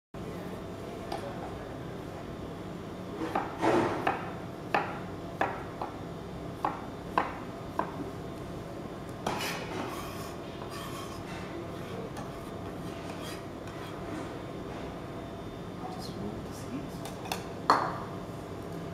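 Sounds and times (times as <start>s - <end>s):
knife blade scraping board: 9.2s - 14.2s.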